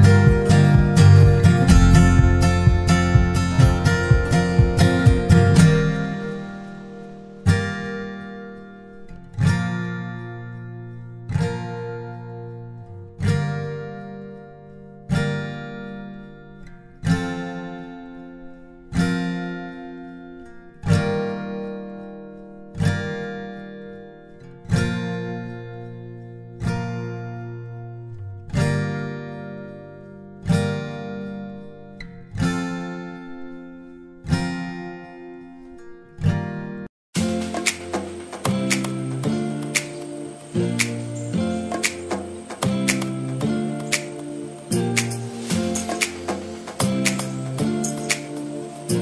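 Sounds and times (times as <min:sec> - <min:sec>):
acoustic guitar strumming slow chords: 0:00.0 - 0:49.0.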